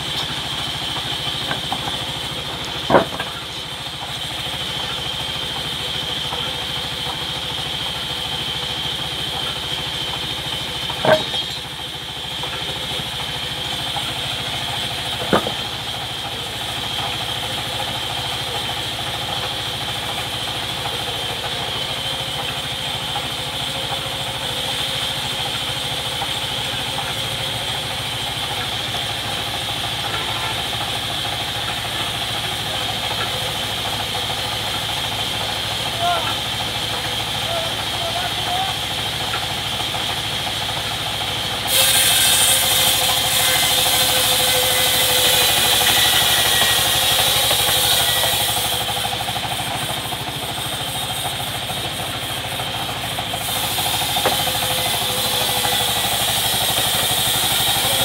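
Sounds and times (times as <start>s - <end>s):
band saw humming and whining: 0.0s - 58.0s
sharp knocks: 15.2s - 15.7s.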